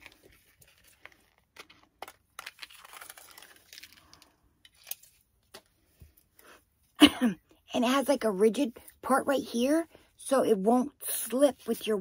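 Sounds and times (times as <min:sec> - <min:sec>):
plastic packaging crinkling: 0:00.0 - 0:05.5.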